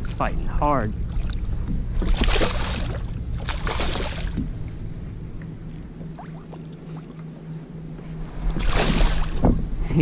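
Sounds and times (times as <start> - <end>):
low rumble: 0.0 - 10.0
fish splashing at water surface: 2.0 - 4.4, 8.6 - 9.4.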